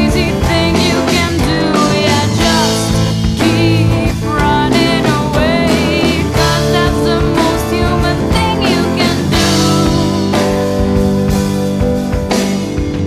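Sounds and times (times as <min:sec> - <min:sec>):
rock music with singing: 0:00.0 - 0:13.0.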